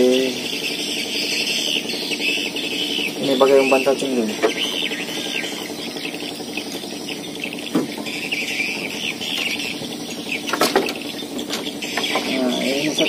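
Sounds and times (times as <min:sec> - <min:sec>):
birds chirping: 0:00.0 - 0:13.0
steady low hum: 0:00.0 - 0:13.0.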